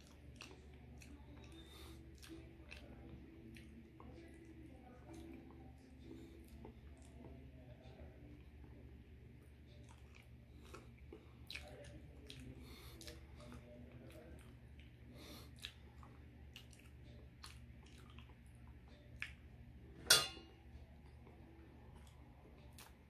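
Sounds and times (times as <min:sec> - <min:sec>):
squishy chewing: 0:00.0 - 0:07.8, 0:09.5 - 0:19.5.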